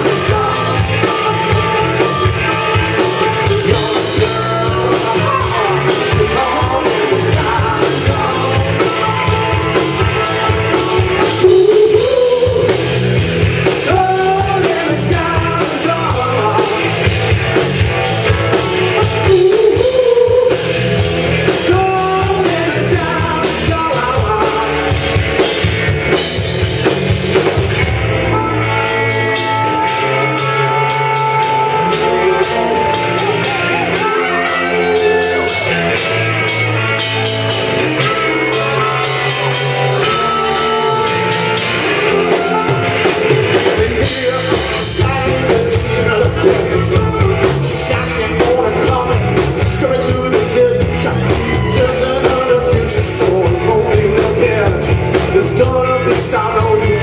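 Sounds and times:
person singing: 0.0s - 25.1s, 28.2s - 36.6s, 37.6s - 57.0s
bass guitar: 0.0s - 57.0s
drum kit: 0.0s - 57.0s
electric guitars: 0.0s - 57.0s.

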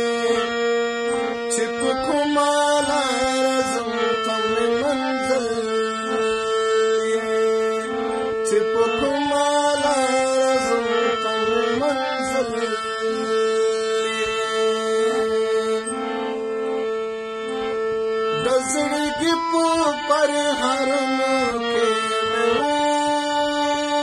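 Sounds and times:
musical accompaniment: 0.0s - 24.0s
man singing held notes: 18.3s - 24.0s.

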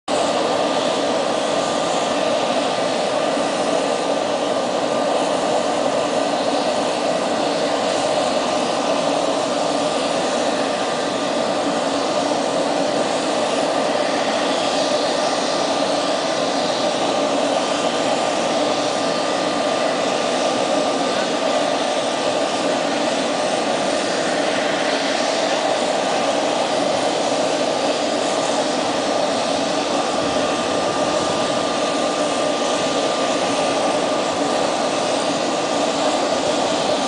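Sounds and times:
turbine drone: 0.1s - 37.0s.

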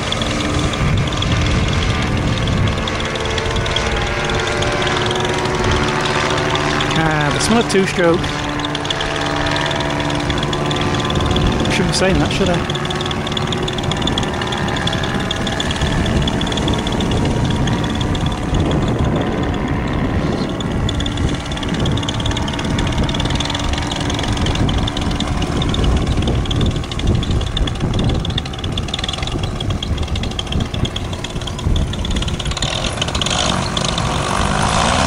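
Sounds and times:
engine and propeller revving up: 0.0s - 35.0s
paramotor engine idling: 0.0s - 35.0s
wind rumbling on microphone: 0.0s - 35.0s.

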